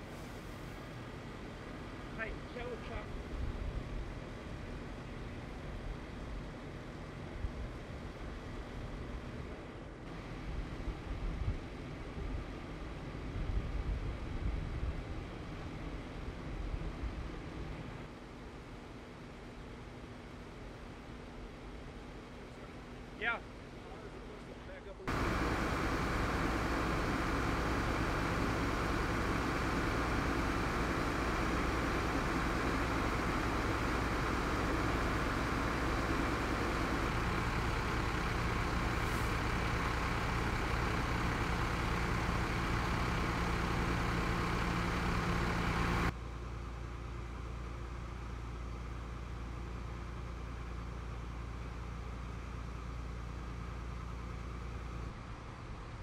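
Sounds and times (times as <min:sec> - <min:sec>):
diesel engines idling: 0:00.0 - 0:03.1, 0:23.6 - 0:55.9.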